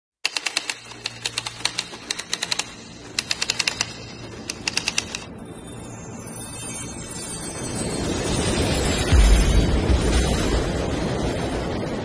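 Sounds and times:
typewriter keys clacking: 0.2 - 5.3.

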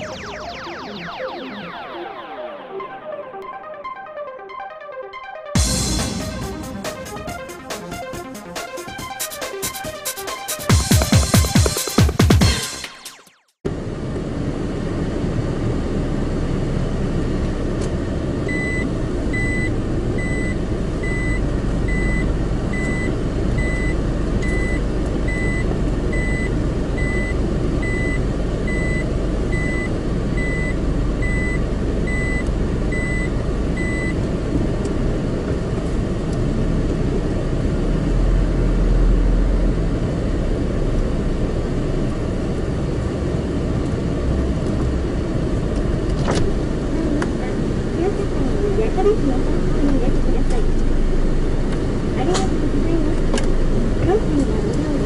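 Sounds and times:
high electronic beeps: 0.0 - 8.1
car engine and road noise: 13.2 - 55.0.

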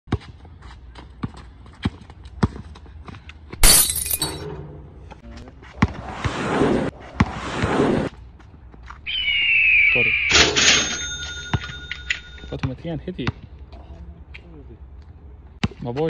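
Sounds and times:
basketball bouncing on asphalt: 0.1 - 3.6, 12.6 - 13.6.

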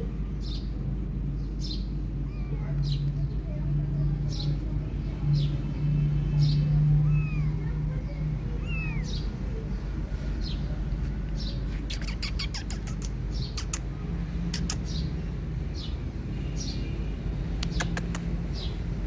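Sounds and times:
bird chirping: 11.4 - 13.9, 14.5 - 18.9
sharp clicks: 11.9 - 13.9, 14.5 - 15.0, 17.6 - 18.4.

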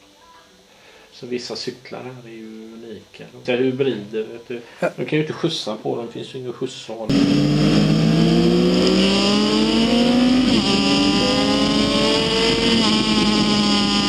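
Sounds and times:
motorcycle engine accelerating: 7.1 - 14.0.

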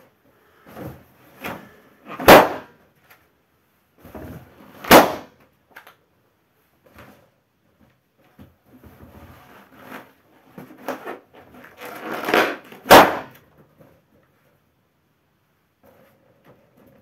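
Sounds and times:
balloon bursting pop: 2.2 - 2.7, 4.8 - 5.3, 12.8 - 13.3.

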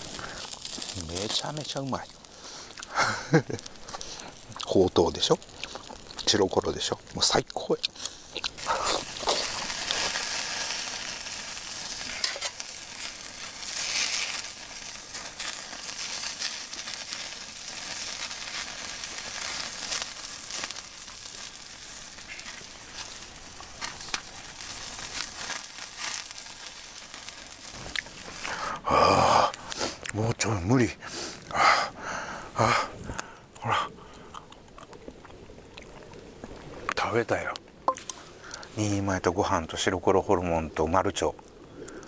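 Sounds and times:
meat sizzling on a grill: 0.0 - 31.4
fat popping and crackling: 0.0 - 38.7, 41.2 - 42.0.

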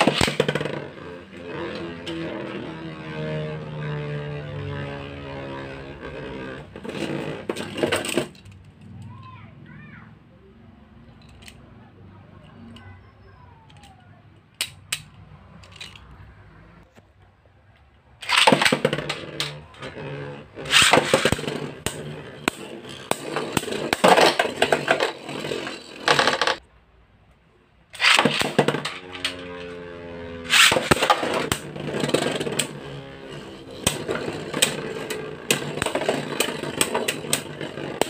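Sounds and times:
spinning tops clashing and rattling: 0.0 - 8.9, 18.2 - 26.6, 28.0 - 38.0.

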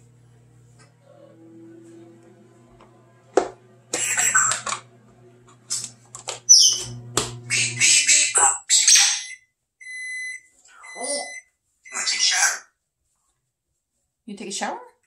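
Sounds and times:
parrot squawking: 6.5 - 9.4, 10.9 - 12.8.

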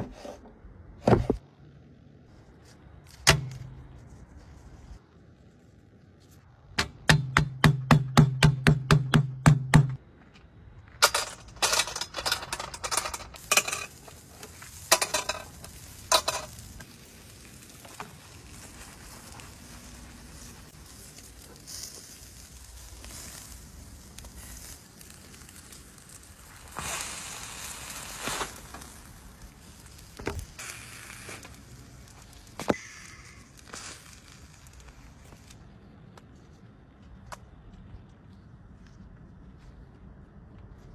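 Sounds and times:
knocks and crackles: 6.4 - 22.0, 28.2 - 33.0
meat sizzling over fire: 13.4 - 35.6.

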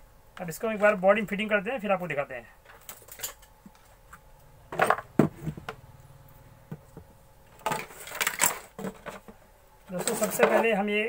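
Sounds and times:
parts clattering and knocking: 2.6 - 5.8, 6.7 - 10.8.

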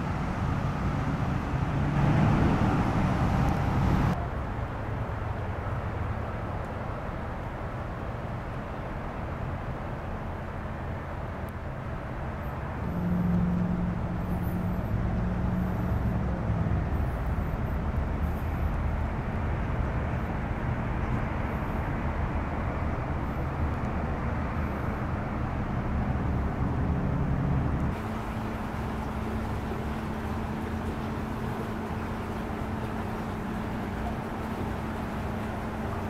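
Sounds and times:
engine hum: 0.0 - 36.0
traffic rumble: 0.0 - 36.0.

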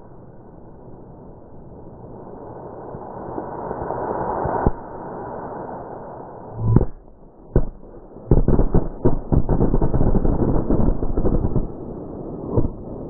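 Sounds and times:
firecrackers bangs: 6.8 - 11.9
firecrackers crackling: 6.8 - 13.0.

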